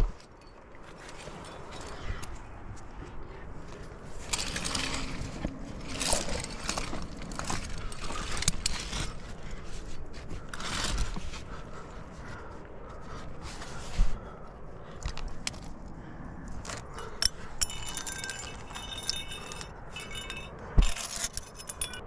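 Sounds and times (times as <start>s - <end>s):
climbing gear clinking: 0.0s - 22.0s
hands and shoes scraping on rock: 2.8s - 12.5s.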